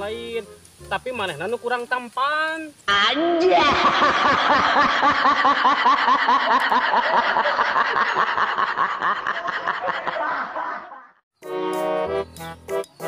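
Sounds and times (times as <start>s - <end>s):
person laughing: 3.3s - 11.1s.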